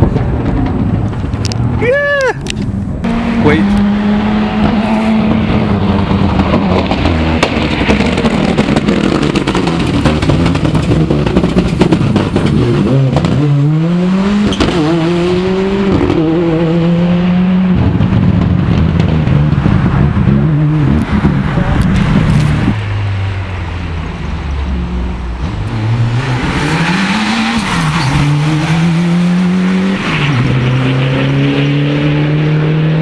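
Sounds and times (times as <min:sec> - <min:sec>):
exhaust pops and cracks: 0:00.0 - 0:02.7, 0:06.3 - 0:13.4, 0:18.0 - 0:19.9, 0:21.0 - 0:22.8
rally car engine revving: 0:02.4 - 0:33.0.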